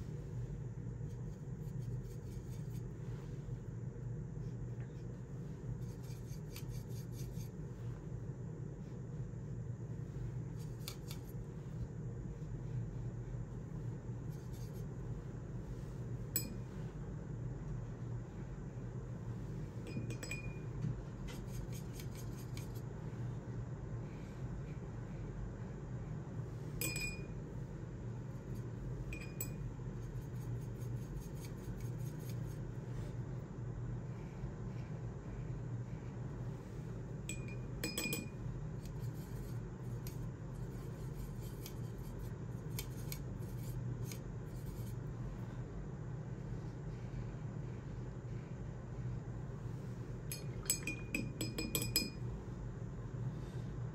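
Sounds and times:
low room hum: 0:00.0 - 0:53.9
brush scratching across paper: 0:01.0 - 0:03.5, 0:04.4 - 0:07.9, 0:14.3 - 0:16.2, 0:21.3 - 0:22.8, 0:29.9 - 0:33.2, 0:38.8 - 0:45.1
paintbrush clinking against glass: 0:16.4 - 0:16.7, 0:19.9 - 0:20.7, 0:26.8 - 0:27.4, 0:29.1 - 0:29.7, 0:37.3 - 0:38.4, 0:50.3 - 0:52.2.

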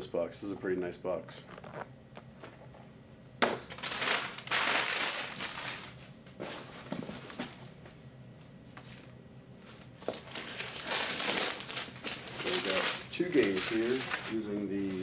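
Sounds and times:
packing paper rustling: 0:03.7 - 0:07.6, 0:10.0 - 0:15.0.

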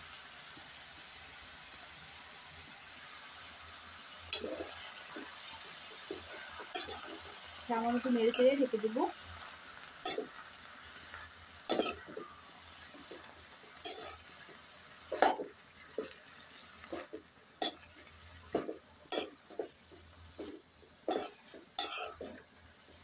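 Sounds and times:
faint frying hiss: 0:00.0 - 0:23.0
metal spoon scraping wok: 0:04.3 - 0:10.4, 0:11.0 - 0:12.2, 0:13.8 - 0:14.4, 0:16.9 - 0:19.7, 0:20.4 - 0:22.4.

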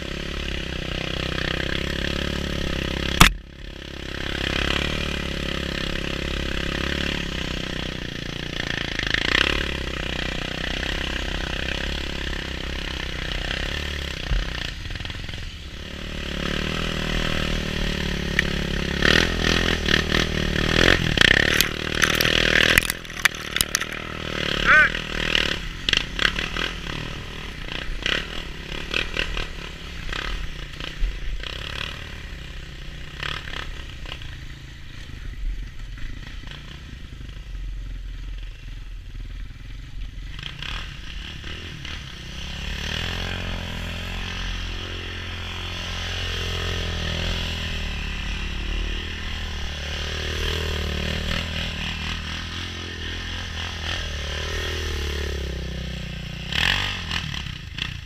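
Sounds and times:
atv engine idling: 0:00.0 - 0:31.4, 0:32.1 - 0:43.0
quad engine revving: 0:00.0 - 0:35.1, 0:40.3 - 0:58.0
atv engine rattling and scraping: 0:00.0 - 0:58.0.

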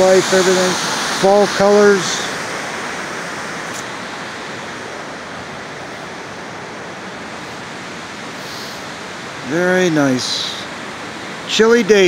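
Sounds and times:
water rushing over dam spillway: 0:00.0 - 0:12.0.

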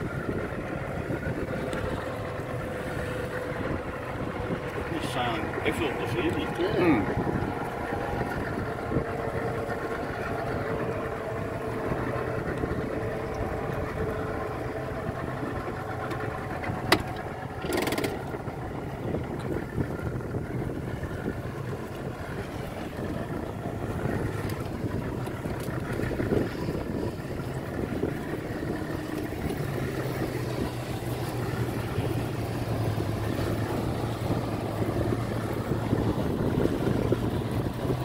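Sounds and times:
motorboat engine idling: 0:00.0 - 0:38.0
water noise: 0:00.0 - 0:38.0
wind: 0:00.0 - 0:38.0.

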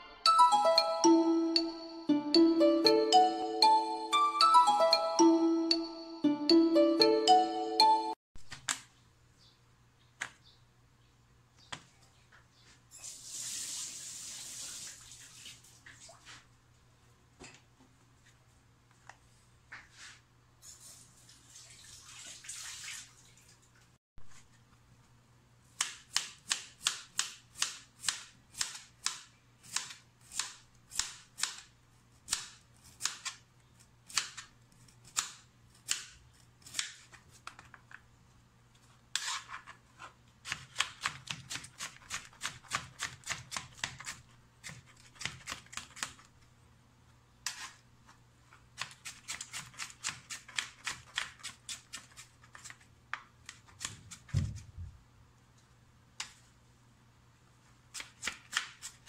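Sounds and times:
knife chopping on plastic board: 0:40.4 - 0:46.1.

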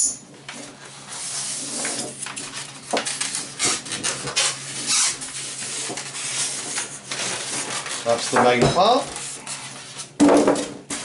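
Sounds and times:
polystyrene foam squeaking and rubbing: 0:01.0 - 0:10.2
foam scraping: 0:03.4 - 0:10.2.

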